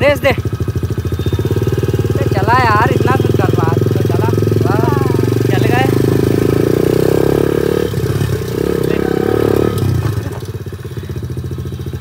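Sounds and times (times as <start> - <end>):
dirt bike engine: 0.0 - 12.0.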